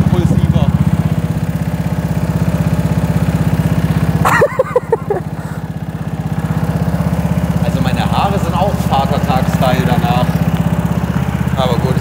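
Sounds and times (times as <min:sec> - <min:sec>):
go-kart engine idling: 0:00.0 - 0:12.0.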